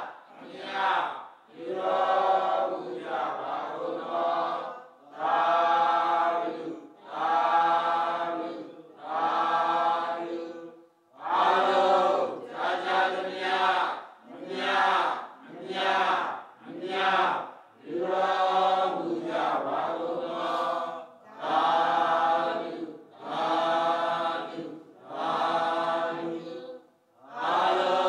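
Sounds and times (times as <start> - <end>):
voices chanting in unison: 0.0 - 28.0.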